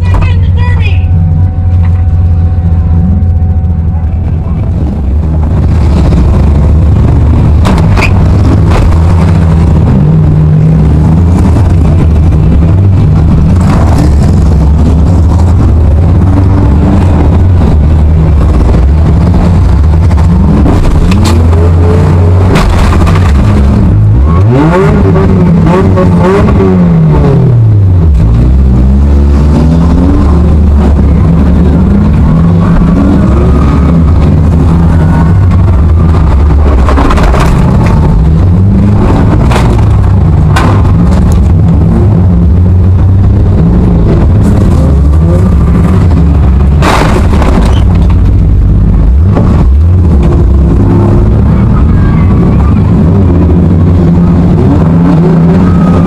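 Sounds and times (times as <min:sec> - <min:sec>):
car engines revving: 0:00.0 - 0:56.0
car crash impacts: 0:46.8 - 0:48.4.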